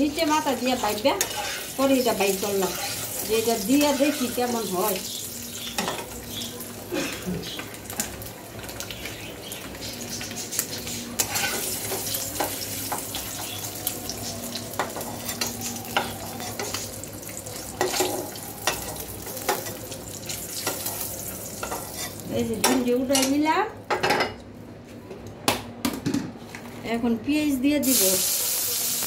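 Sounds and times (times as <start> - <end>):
oil sizzling in wok: 0.0 - 22.3, 27.8 - 29.0
metal spatula scraping pan: 1.2 - 1.8, 2.4 - 4.7, 10.8 - 12.0.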